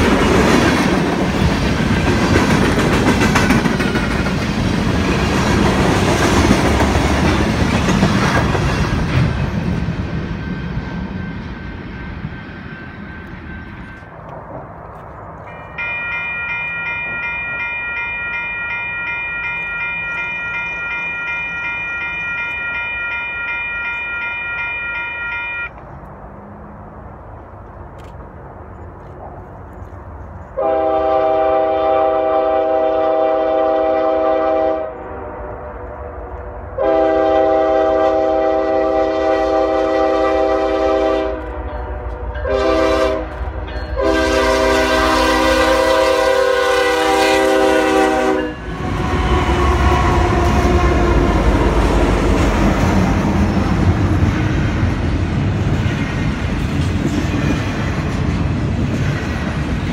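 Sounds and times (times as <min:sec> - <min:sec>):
train rumbling past: 0:00.0 - 0:59.9
locomotive air horn: 0:30.6 - 0:43.4, 0:44.0 - 0:51.8.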